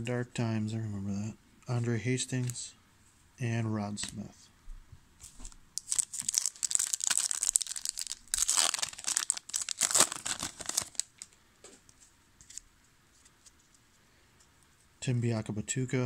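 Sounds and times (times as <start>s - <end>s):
foil wrapper crinkling and tearing: 5.4s - 11.4s.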